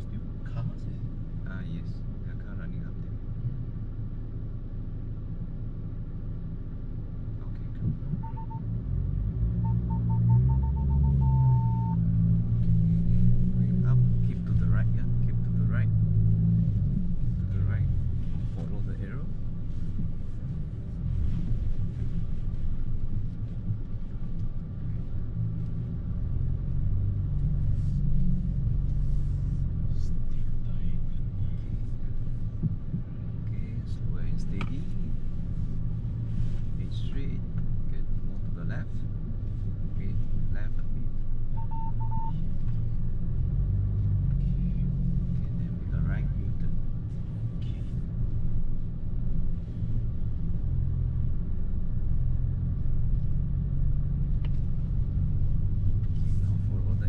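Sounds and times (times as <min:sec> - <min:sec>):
diesel engine running: 0:00.0 - 0:57.0
short high electronic beeps: 0:09.9 - 0:12.0.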